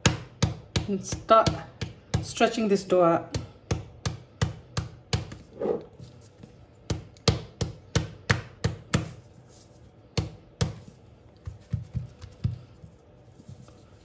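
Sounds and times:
dough slapped onto a mat: 0:06.9 - 0:09.2, 0:10.2 - 0:12.6.

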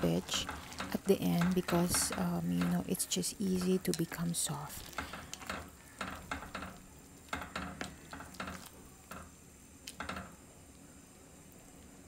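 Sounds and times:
chopsticks clacking against pot: 0:00.1 - 0:09.3.

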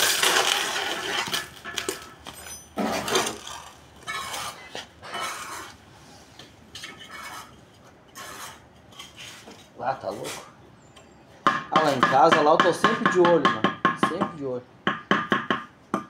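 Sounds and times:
trowel scraping on mortar and bricks: 0:00.0 - 0:10.6.

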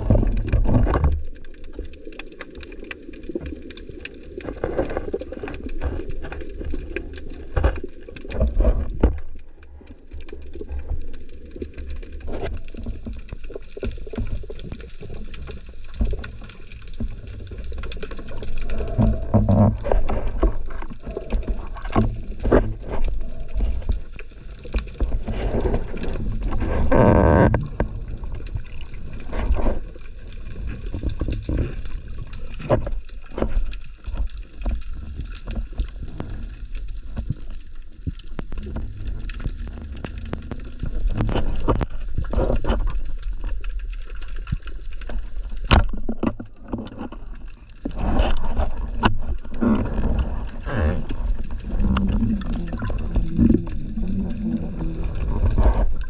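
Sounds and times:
underwater water movement: 0:00.0 - 0:56.0.

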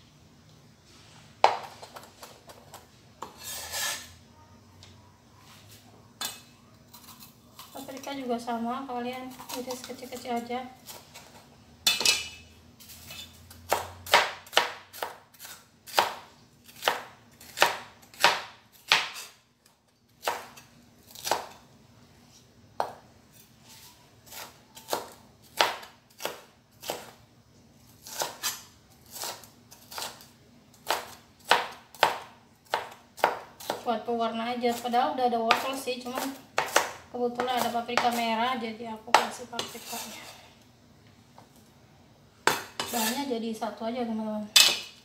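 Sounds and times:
knife chopping on wooden board: 0:13.7 - 0:19.3, 0:30.8 - 0:33.8, 0:35.5 - 0:38.2.

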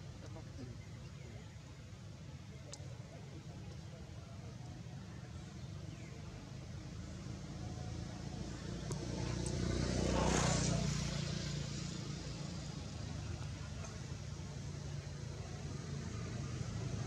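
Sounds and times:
vehicle passing by: 0:06.3 - 0:17.0.

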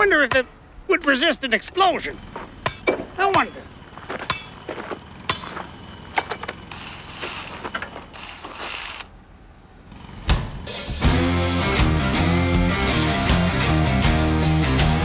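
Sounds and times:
hammer clanking on metal: 0:02.6 - 0:06.7
cordless power tool: 0:04.7 - 0:09.2.

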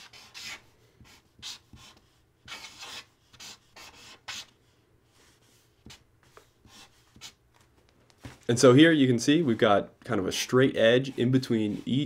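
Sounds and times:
marker squeaking on paper: 0:00.0 - 0:04.6.

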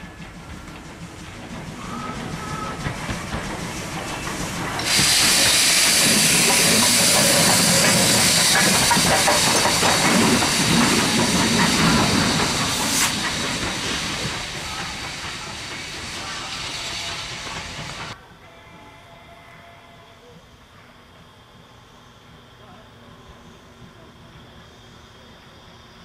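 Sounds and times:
locomotive engine and wheels rumbling: 0:00.0 - 0:18.4, 0:20.2 - 0:26.0
loud hiss of steam: 0:00.0 - 0:18.6.

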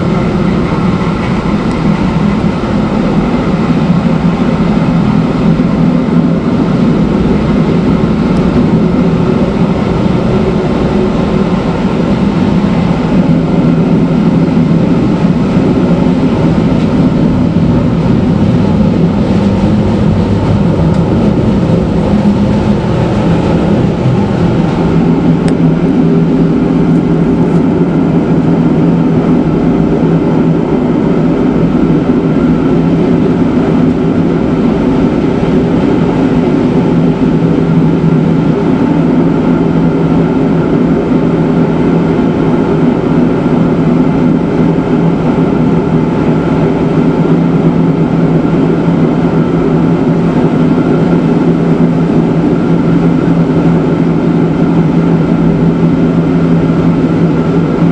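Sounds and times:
constant low hum: 0:00.0 - 0:57.9
train wheels rumbling on track: 0:00.0 - 0:57.9.

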